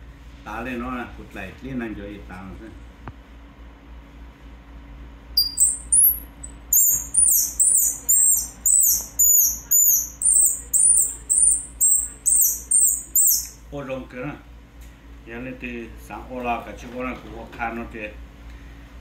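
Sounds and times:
shrill squirrel call squeaks: 5.4s - 13.6s.

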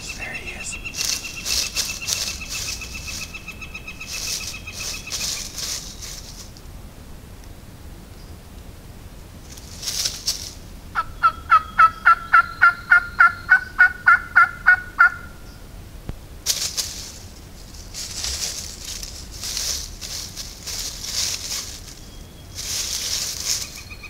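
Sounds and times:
rustling in dry leaves: 0.0s - 6.9s, 9.3s - 11.3s, 16.1s - 24.0s
turkey yelping: 11.0s - 15.4s.

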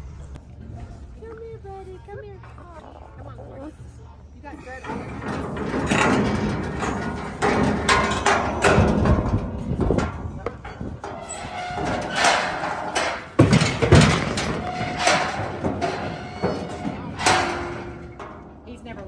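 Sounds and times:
hooves clattering on trailer floor: 4.4s - 19.0s
knocks against metal trailer sides: 5.5s - 18.4s.

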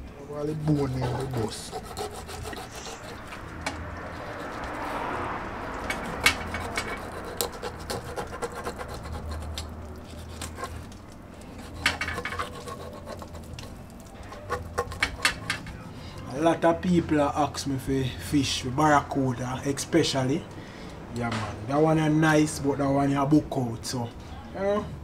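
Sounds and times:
knife scraping through fish flesh: 0.5s - 4.8s, 6.0s - 15.6s.

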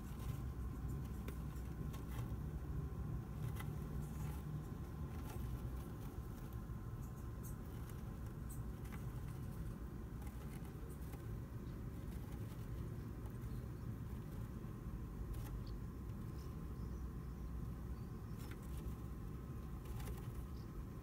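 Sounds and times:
hamster rustling in straw bedding: 0.0s - 6.9s, 7.5s - 16.2s, 18.4s - 20.6s
low background rumble: 0.0s - 21.0s.

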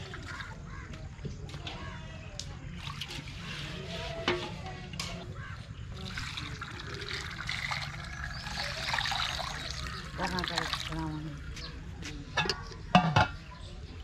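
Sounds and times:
water pouring into a steel bowl: 2.8s - 4.0s, 5.9s - 11.4s
water splashing onto ground: 5.9s - 11.6s.

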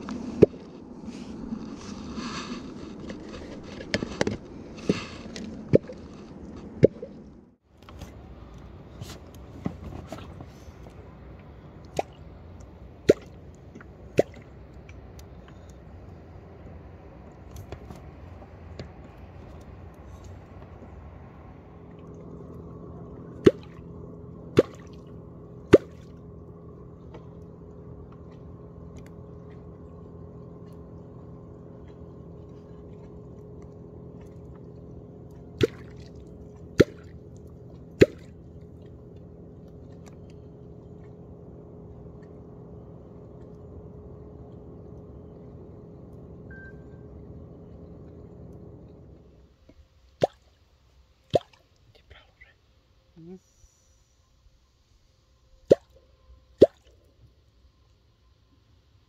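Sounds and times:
steady low hum: 0.0s - 59.0s
catfish clonk striking water: 13.0s - 14.5s, 23.4s - 23.8s, 24.6s - 25.0s, 50.2s - 50.5s, 51.3s - 51.6s.

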